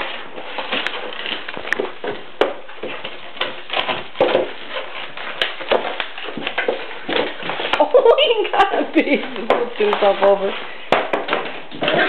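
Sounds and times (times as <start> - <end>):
cardboard scraping on tile floor: 0.0 - 12.0.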